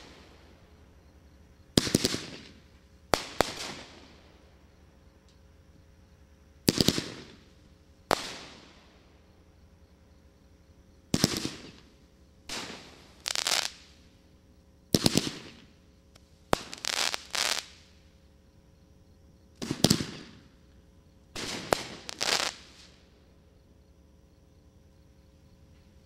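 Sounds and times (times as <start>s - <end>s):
firework cake bangs with hiss: 3.2s - 4.2s, 8.1s - 8.8s, 12.5s - 14.0s, 16.5s - 17.9s, 19.6s - 20.4s, 21.4s - 23.0s.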